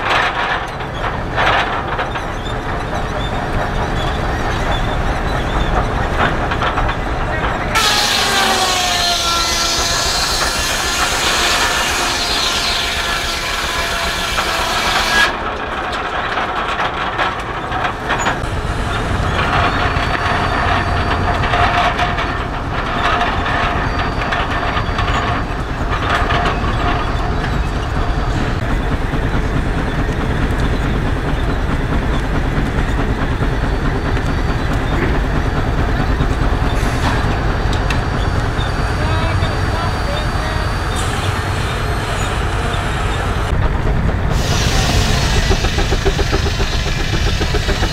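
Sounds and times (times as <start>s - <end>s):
sawmill saw cutting log: 7.8s - 15.4s, 44.3s - 47.9s
low rumble with whine: 25.5s - 47.9s.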